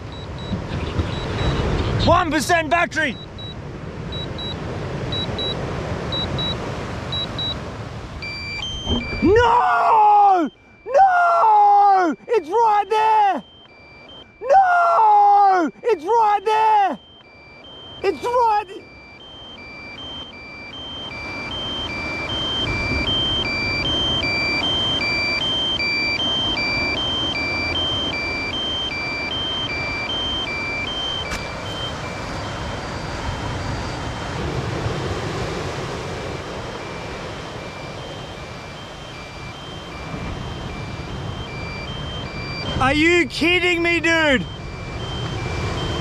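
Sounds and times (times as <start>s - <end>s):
two-pitch alarm beeps: 0.0s - 46.0s
wind and surf: 0.0s - 46.0s.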